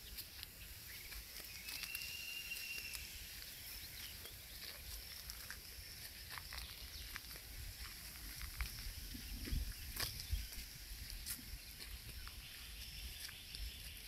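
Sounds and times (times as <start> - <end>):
faint birds calling: 0.0 - 7.5, 9.0 - 14.0
whistled bird note: 0.9 - 4.2.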